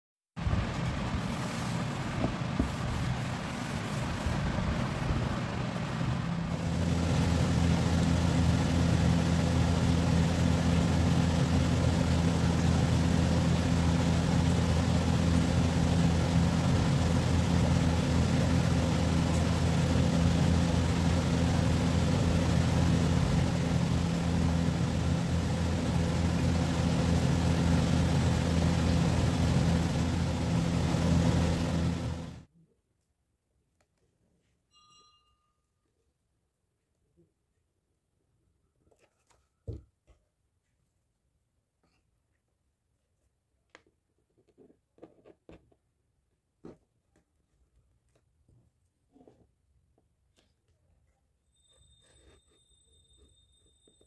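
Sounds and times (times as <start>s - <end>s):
motor humming: 0.9s - 32.5s.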